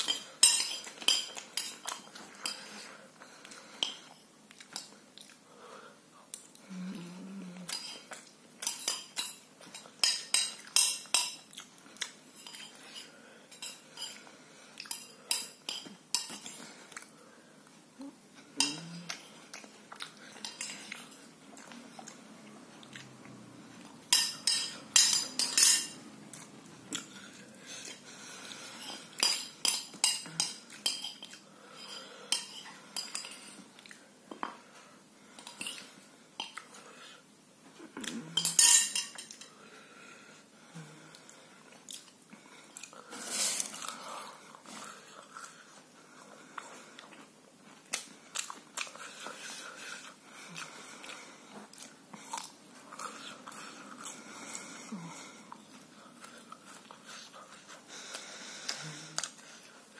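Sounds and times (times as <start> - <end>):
cutlery clinking on a plate: 0.0 - 2.7, 7.7 - 11.5, 24.1 - 26.0, 38.4 - 39.5.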